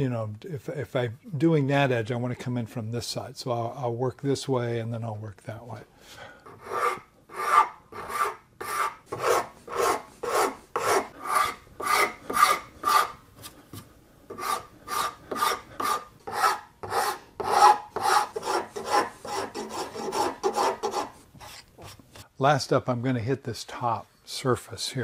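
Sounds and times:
rasp scraping wood: 6.5 - 13.6, 14.3 - 22.0.

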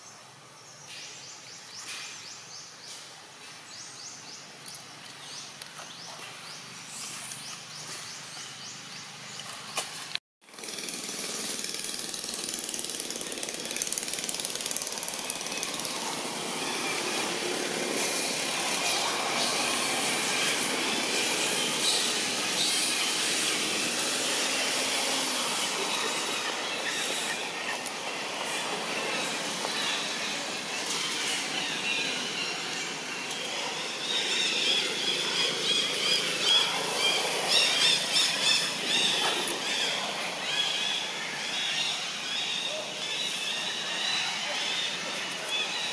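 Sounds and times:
high hiss and buzz: 15.1 - 33.5.

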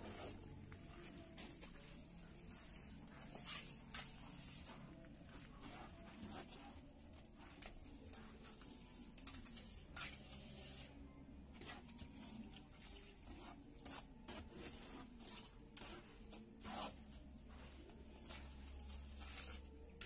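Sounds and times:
trowel scraping mortar: 13.3 - 19.7.

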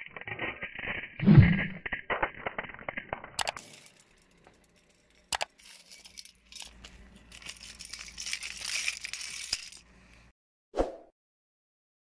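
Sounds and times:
plastic shards clinking and rattling: 1.9 - 9.9.

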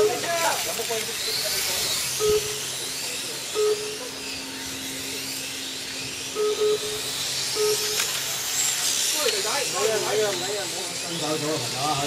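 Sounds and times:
short electronic beeps: 0.0 - 0.2, 2.2 - 2.6, 3.5 - 4.1, 6.4 - 8.1
electric motors whining: 0.0 - 12.0.

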